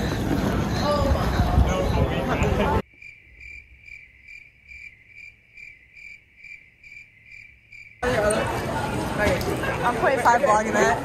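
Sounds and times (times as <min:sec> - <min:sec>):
cricket chirping: 0:02.8 - 0:08.0.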